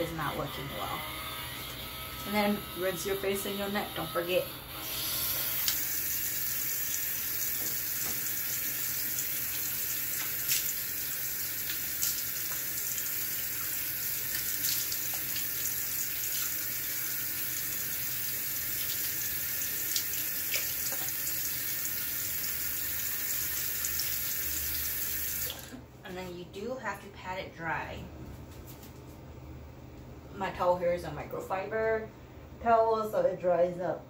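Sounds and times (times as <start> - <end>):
tap running into a sink: 7.4 - 8.7, 20.0 - 21.4.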